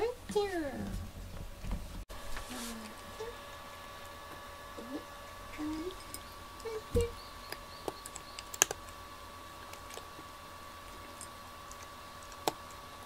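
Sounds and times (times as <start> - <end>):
faint steady hum: 0.0 - 13.0
cats crunching dry kibble: 5.2 - 13.0.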